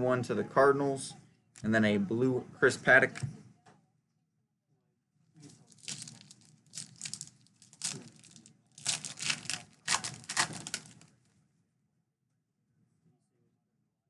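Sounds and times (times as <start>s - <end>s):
plastic wrapper tearing and crinkling: 5.5s - 11.2s.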